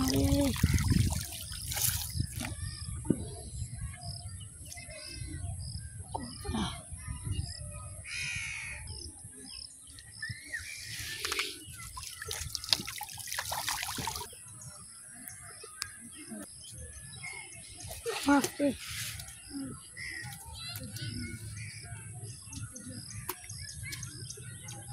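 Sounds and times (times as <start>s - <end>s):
water splashing off a net: 0.0s - 2.5s, 11.1s - 14.3s
birds calling: 7.4s - 24.9s.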